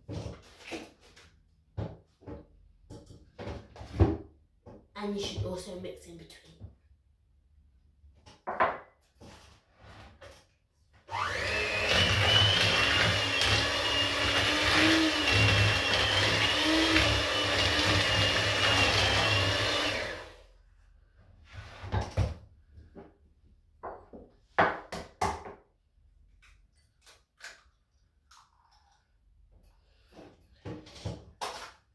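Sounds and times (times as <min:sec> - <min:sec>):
electric hand mixer whine: 0:11.1 - 0:20.4.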